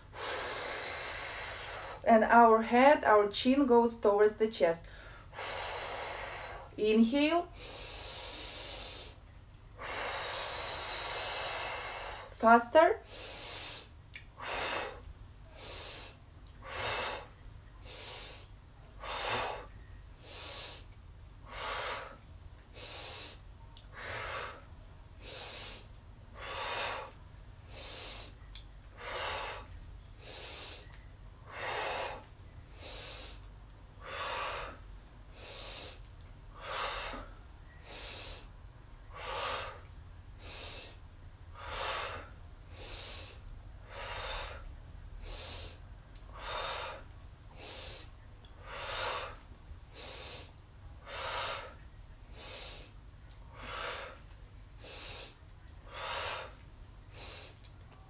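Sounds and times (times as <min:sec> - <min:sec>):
woman fast rhythmic breathing: 0:00.0 - 0:57.8.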